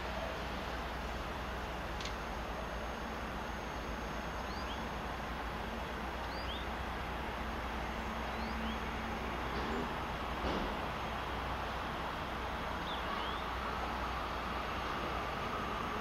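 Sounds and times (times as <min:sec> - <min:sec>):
distant train rumbling: 0:00.0 - 0:16.0
small bird chirping: 0:04.4 - 0:04.9, 0:06.3 - 0:06.7, 0:12.8 - 0:13.5.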